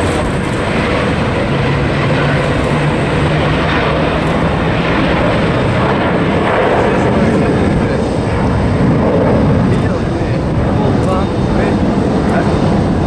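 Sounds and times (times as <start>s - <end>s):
jet engines at takeoff: 0.0s - 13.0s.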